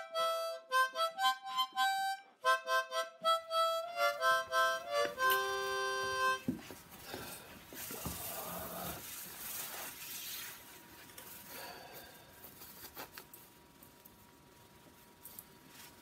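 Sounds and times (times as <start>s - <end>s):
nylon jacket rustling: 7.6s - 11.5s.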